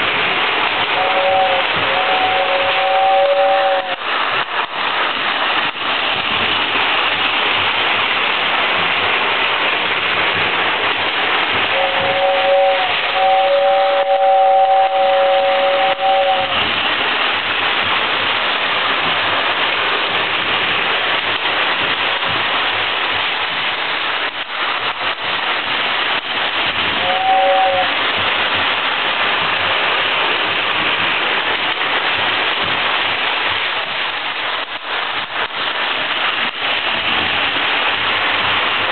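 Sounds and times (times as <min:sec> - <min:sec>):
two-tone toy train whistle: 0:01.0 - 0:04.0, 0:11.7 - 0:16.6, 0:27.0 - 0:27.9.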